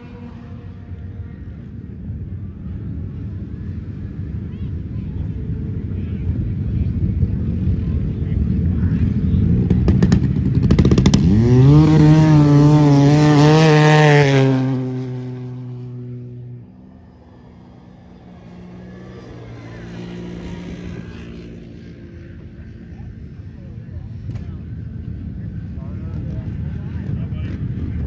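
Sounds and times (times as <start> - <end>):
faint atv engine: 0.0 - 28.0
snowmobile engine accelerating: 7.8 - 23.3.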